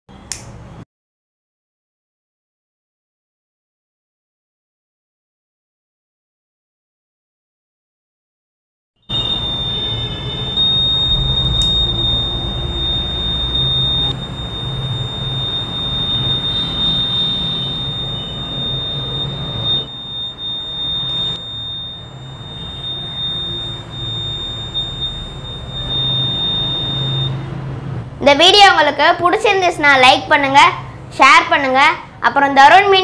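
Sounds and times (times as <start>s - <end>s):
high-pitched alarm buzzer tone: 9.0s - 27.6s.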